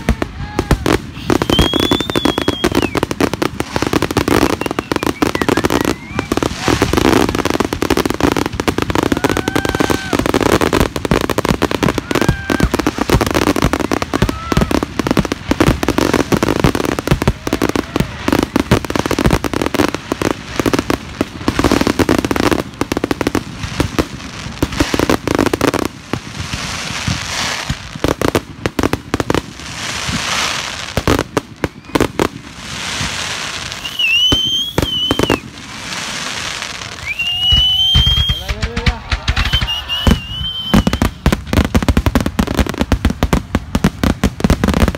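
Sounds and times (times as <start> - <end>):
fireworks bangs and crackles: 0.0 - 44.9
firework whistles: 1.0 - 3.1, 4.2 - 7.6, 31.6 - 41.4.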